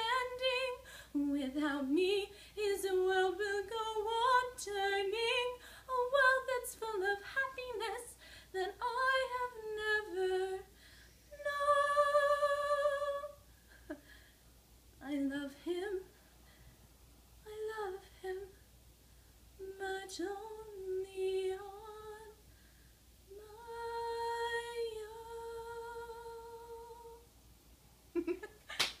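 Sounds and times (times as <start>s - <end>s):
woman singing unaccompanied: 0.0s - 10.7s, 11.3s - 13.4s, 15.0s - 16.1s, 17.4s - 18.6s, 19.6s - 22.4s, 23.3s - 27.2s.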